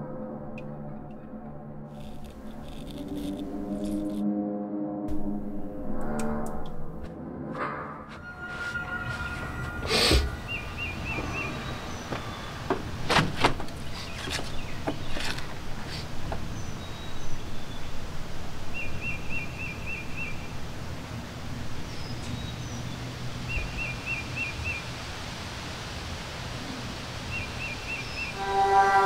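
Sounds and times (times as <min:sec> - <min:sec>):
knocks and rustles: 0:11.1 - 0:16.4.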